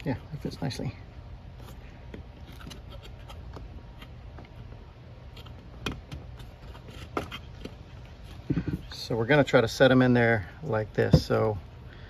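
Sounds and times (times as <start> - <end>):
plastic pipe fitting scraping: 1.6 - 4.6.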